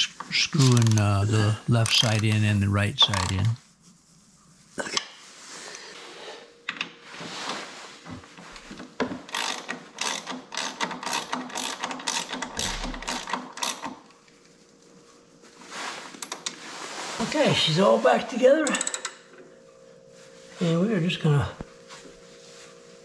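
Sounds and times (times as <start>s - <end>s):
ratchet wrench clicking: 9.3s - 14.0s, 18.7s - 19.2s.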